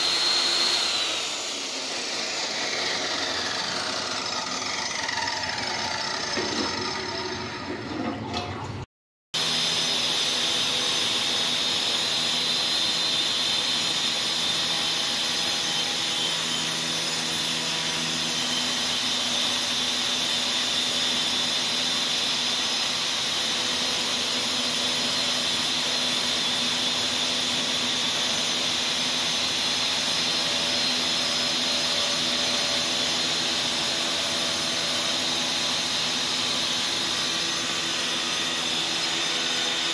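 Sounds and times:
tile cutter motor running: 0.0s - 8.0s, 9.4s - 39.9s.

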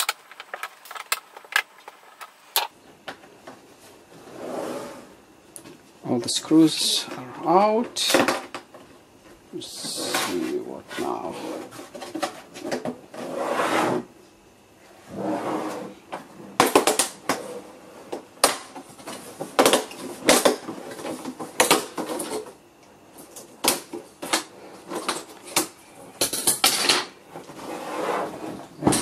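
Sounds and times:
plastic rubbing and handling: 0.0s - 4.2s.

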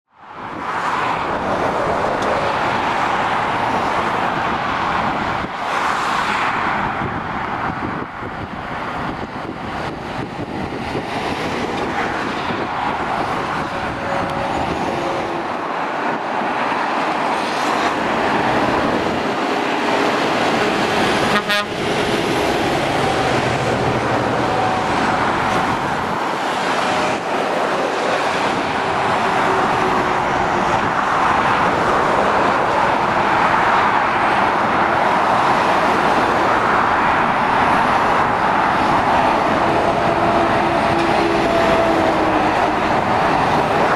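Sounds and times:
passing traffic tyres and engines: 0.1s - 43.9s.

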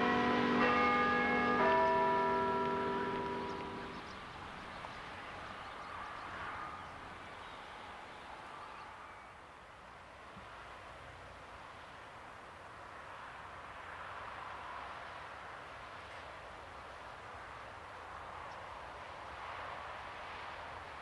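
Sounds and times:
bell ringing: 0.0s - 4.0s
faint open-air hiss: 0.0s - 21.0s.

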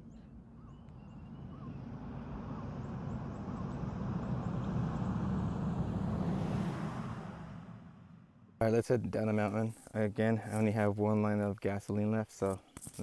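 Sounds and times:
faint bird chirps: 0.0s - 3.8s
pickup truck passing: 0.5s - 8.6s.

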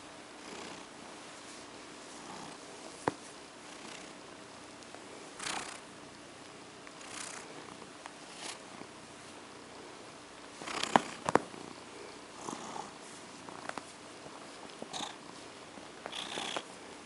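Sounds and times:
cat purring: 0.4s - 0.9s, 1.5s - 2.7s, 3.6s - 4.3s, 5.4s - 5.8s, 7.0s - 8.9s, 10.5s - 15.4s, 16.0s - 16.7s
hand stroking fur rustles: 0.5s - 4.0s.

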